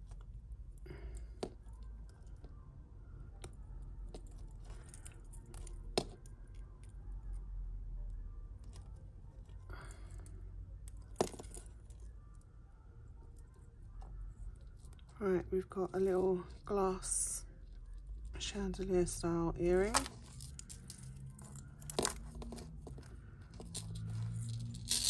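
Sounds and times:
metal jewellery clicking and jingling: 0:19.8 - 0:25.0.

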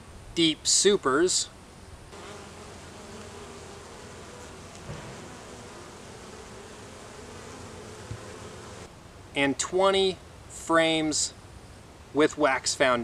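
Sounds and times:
bees buzzing: 0:02.1 - 0:08.9
soft knock: 0:08.1 - 0:08.3.

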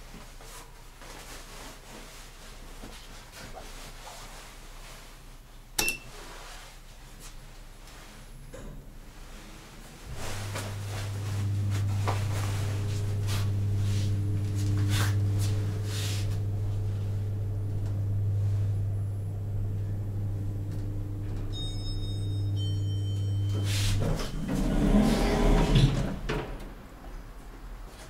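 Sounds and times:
elevator drive humming: 0:10.0 - 0:26.8.

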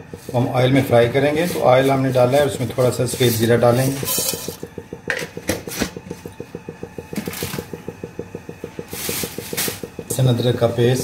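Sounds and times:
rapid low ticking: 0:00.0 - 0:11.0
seeds sizzling in oil: 0:08.8 - 0:10.7.

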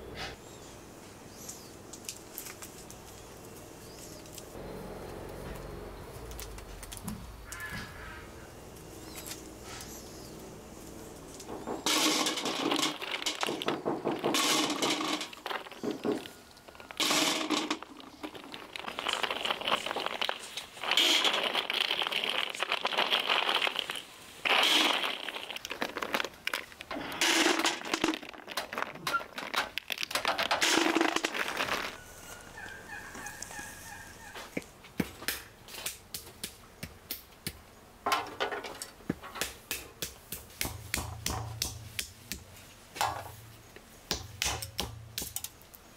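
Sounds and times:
walnuts clattering in metal basin: 0:11.2 - 0:32.0
walnuts cracked on wooden block: 0:11.4 - 0:32.0.

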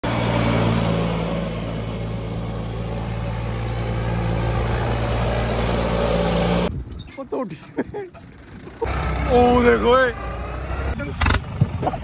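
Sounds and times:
tractor diesel engine running: 0:00.0 - 0:06.7.

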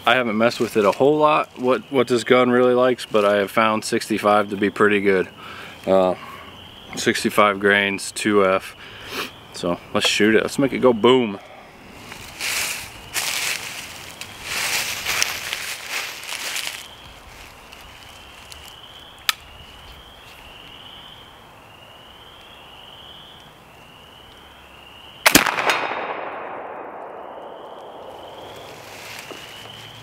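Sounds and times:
rifle shot with echo: 0:25.2 - 0:28.8.

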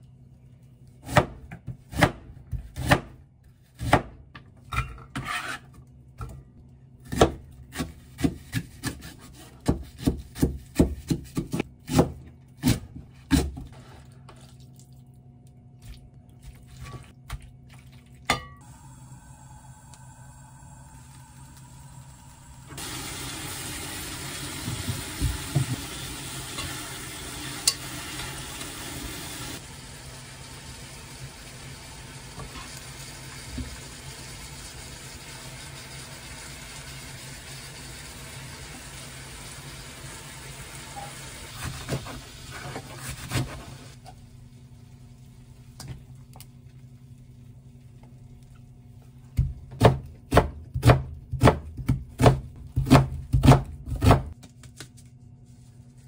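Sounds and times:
knife chopping on plastic board: 0:07.1 - 0:13.6, 0:49.4 - 0:54.4
food sizzling in a pot: 0:18.6 - 0:44.0.

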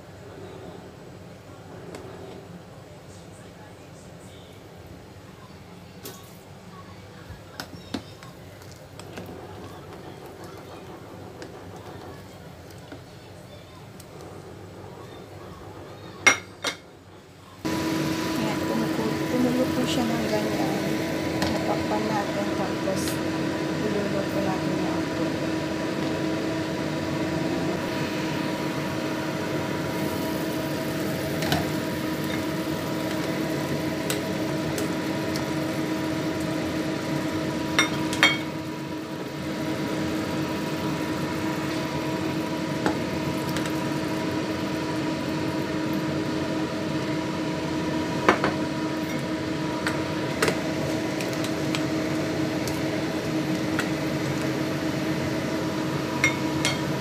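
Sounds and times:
appliance fan humming: 0:00.0 - 0:57.0.

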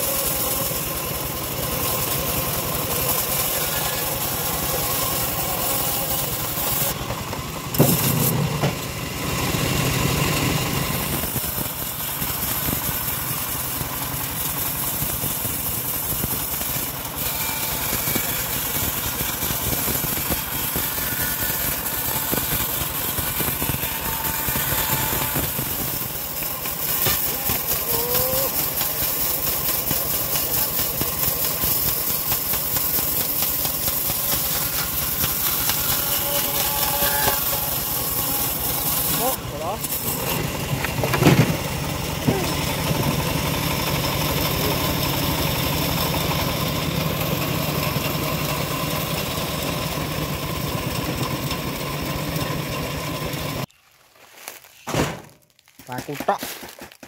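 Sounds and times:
bandsaw mill sawing log: 0:00.0 - 0:53.7.

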